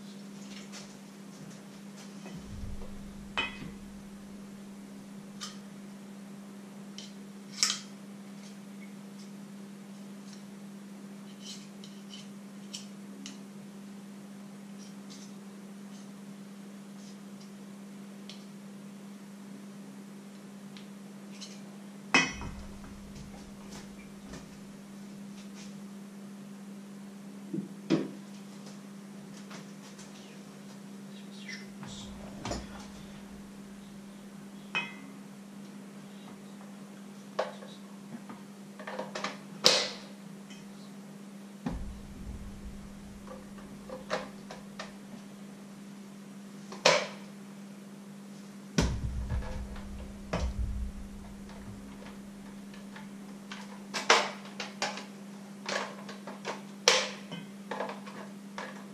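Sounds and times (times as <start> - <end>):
steady low hum: 2.2 - 6.4, 22.1 - 27.4, 30.2 - 36.4, 41.4 - 44.8, 48.8 - 52.9.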